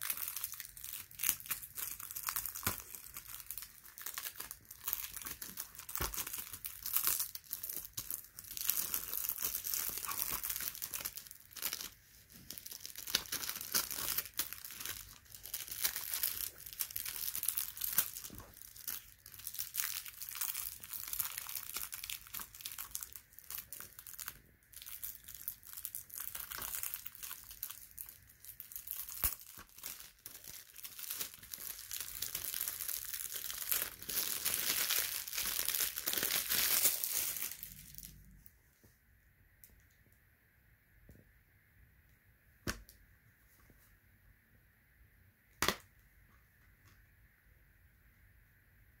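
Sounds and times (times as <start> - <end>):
plastic wrap crinkling and tearing: 0.0 - 38.3.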